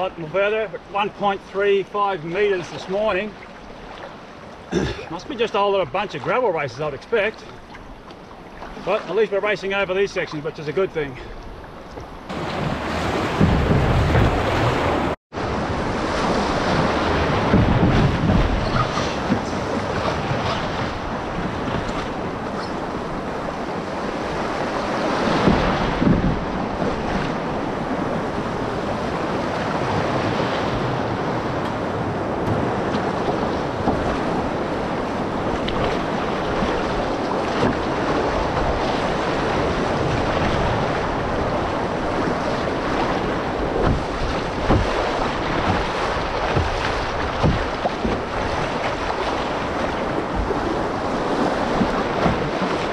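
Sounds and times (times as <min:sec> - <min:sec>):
wind on microphone: 0:11.6 - 0:52.9.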